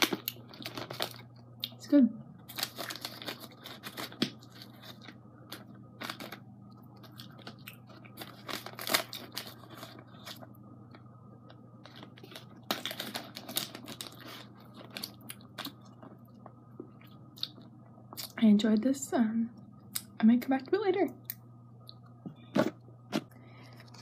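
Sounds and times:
cotton candy tearing and rustling: 0.0 - 1.4, 2.5 - 16.1
plastic container crinkling: 2.5 - 6.4, 7.0 - 10.5, 11.8 - 16.1.

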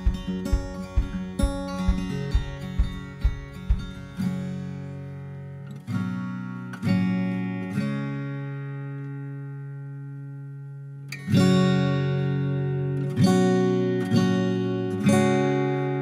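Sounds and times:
low thumping beat: 0.0 - 4.6
acoustic guitar strumming chords: 0.0 - 16.0.

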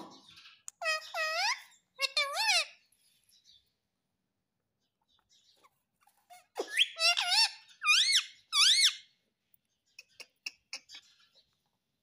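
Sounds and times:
parakeet whistled calls: 6.6 - 9.1.

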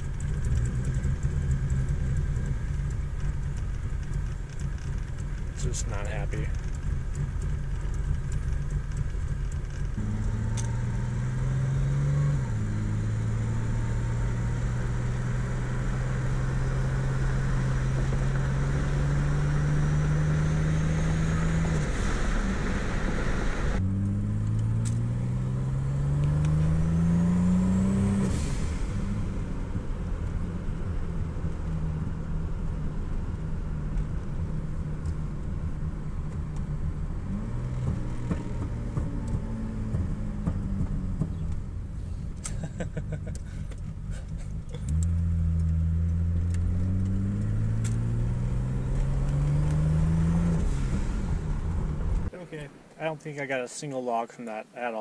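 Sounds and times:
car engine accelerating: 0.0 - 53.5.

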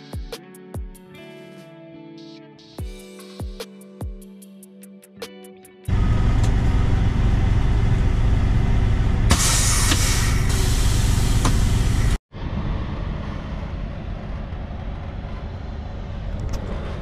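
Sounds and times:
diesel truck engine rumbling: 5.9 - 17.0
truck engine idling: 5.9 - 17.0
loud hiss: 9.3 - 12.2.

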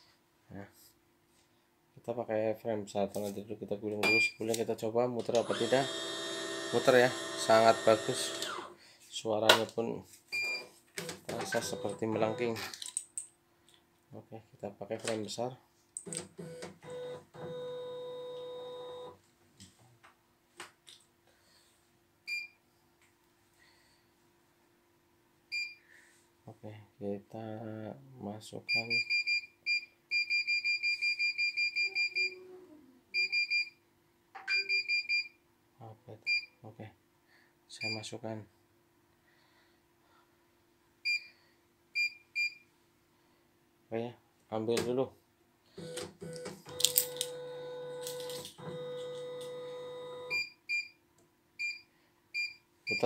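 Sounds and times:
machine motors whirring: 5.3 - 8.7.

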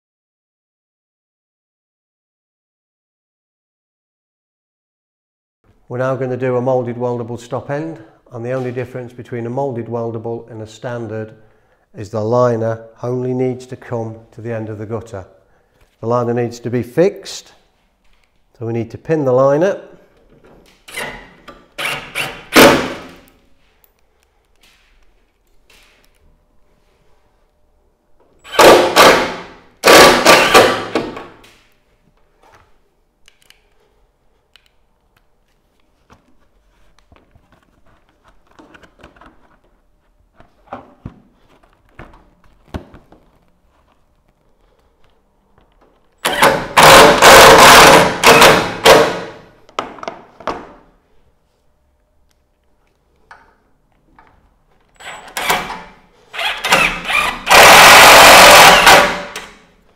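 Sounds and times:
impact driver bursts: 20.9 - 23.2, 28.5 - 31.3, 46.2 - 49.4, 55.0 - 59.5.

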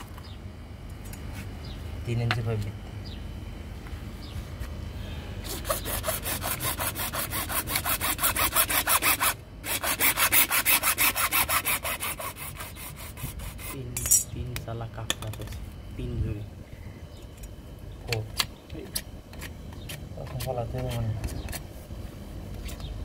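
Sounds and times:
hacksaw sawing plastic pipe: 5.5 - 13.8.

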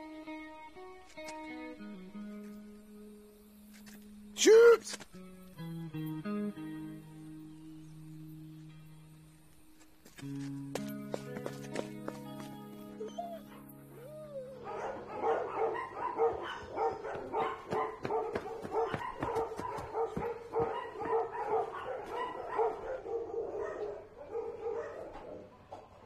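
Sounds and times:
held music notes: 0.0 - 15.6
many dogs barking: 14.6 - 26.0.

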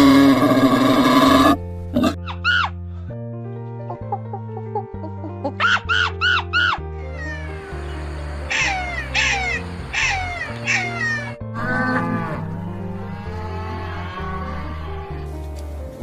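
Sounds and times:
animal cries: 0.0 - 2.8, 5.6 - 15.3
background music with low notes: 0.0 - 16.0.

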